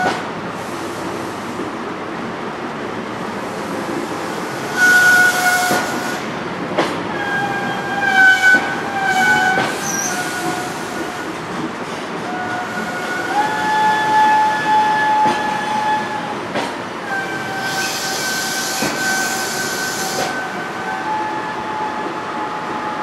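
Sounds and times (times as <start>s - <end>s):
train wheels squealing on rails: 3.4s - 6.4s, 7.1s - 23.0s.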